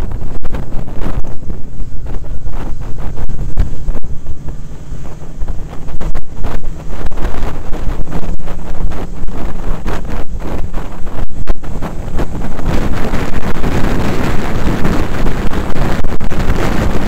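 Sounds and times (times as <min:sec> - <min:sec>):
motorcycle engine drone: 0:00.0 - 0:17.0
wind buffeting microphone: 0:00.0 - 0:17.0.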